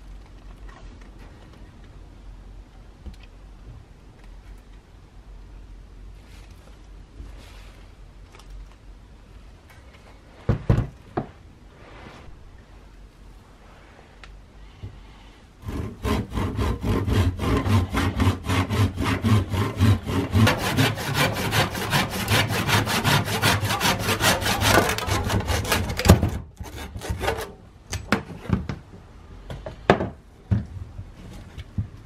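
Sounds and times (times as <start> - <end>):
handsaw cutting wood: 15.6 - 27.5.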